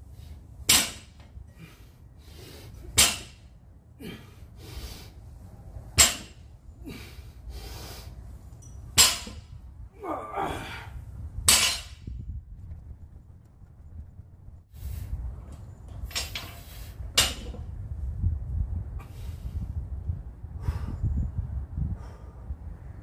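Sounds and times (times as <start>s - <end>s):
barbell clanking on concrete: 0.7s - 1.6s, 2.9s - 3.5s, 6.0s - 6.5s, 8.6s - 9.5s, 11.5s - 12.1s, 15.9s - 17.7s
person straining vocally: 10.0s - 11.0s.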